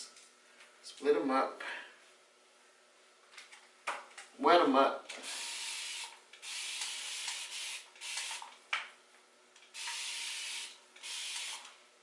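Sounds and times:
spray bottle misting hiss: 6.4s - 8.4s.

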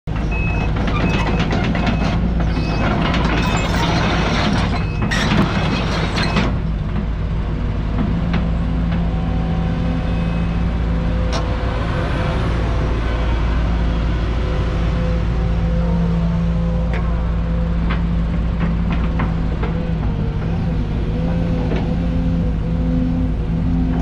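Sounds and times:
excavator diesel engine running: 0.1s - 24.0s.

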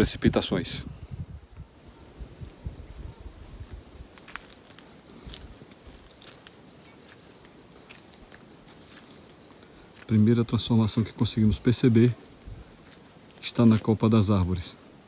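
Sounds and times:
insect chirping: 0.9s - 15.0s
footsteps on dirt path: 3.4s - 10.3s, 12.0s - 14.0s.

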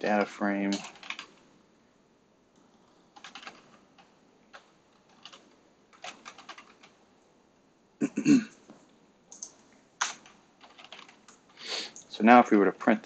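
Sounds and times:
keyboard typing: 0.1s - 1.5s, 2.5s - 7.0s, 8.5s - 12.1s.

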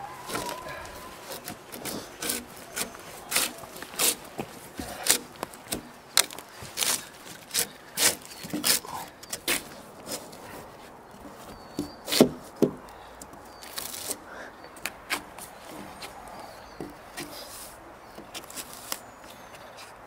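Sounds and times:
drawknife scraping bark: 0.0s - 10.4s.

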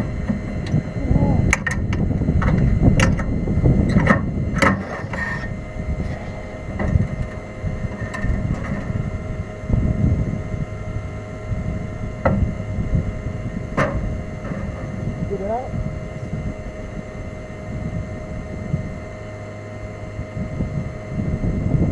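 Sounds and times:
wind rumbling on microphone: 0.0s - 21.9s
knocks and clunks on vehicle: 1.5s - 3.3s, 12.2s - 12.5s, 13.7s - 14.9s.

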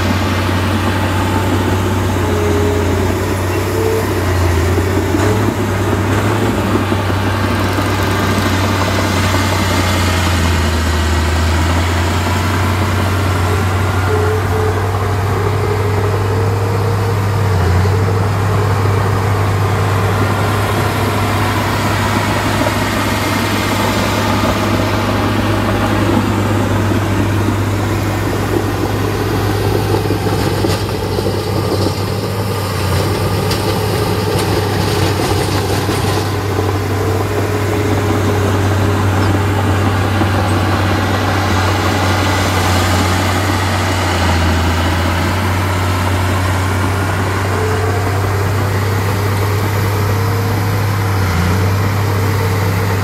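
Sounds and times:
heavy diesel engines droning: 0.0s - 53.0s.

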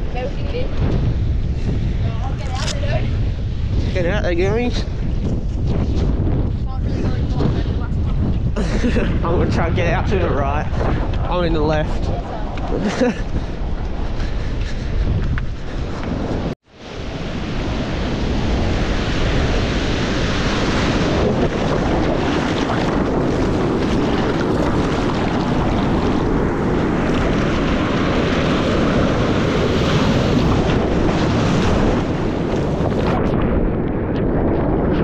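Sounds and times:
ocean surf and rushing water: 0.0s - 35.0s
wind buffeting microphone: 0.0s - 35.0s.

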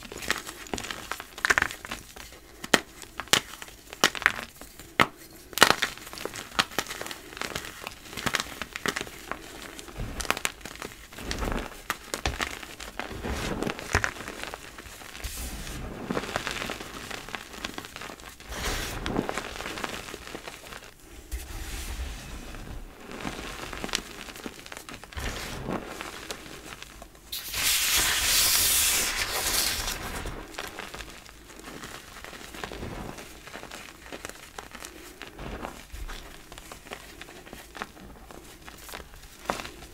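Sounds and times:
hands crushing chalk blocks: 0.0s - 20.7s, 27.4s - 32.8s
loud hissing rush: 27.3s - 30.4s.

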